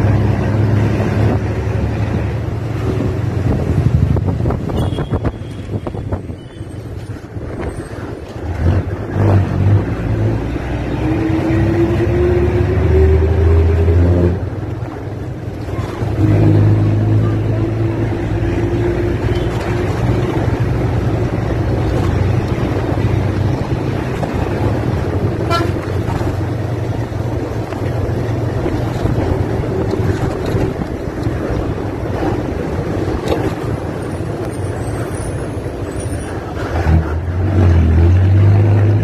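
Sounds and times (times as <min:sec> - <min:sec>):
road and traffic noise: 0:00.0 - 0:39.0
horn toot: 0:25.4 - 0:25.9.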